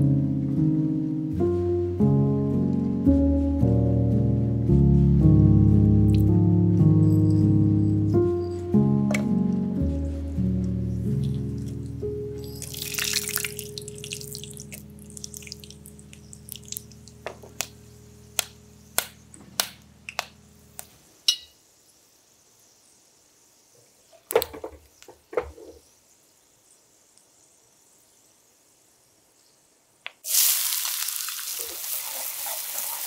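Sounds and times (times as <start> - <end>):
sharp pops and crackles: 11.1 - 21.5
spices sizzling in hot oil: 12.4 - 17.2, 30.2 - 33.0.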